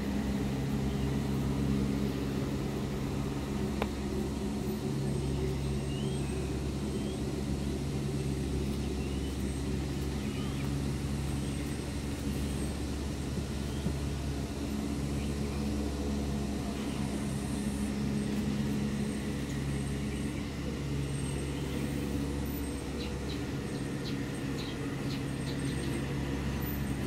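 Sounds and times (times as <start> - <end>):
motor humming: 0.0 - 27.0.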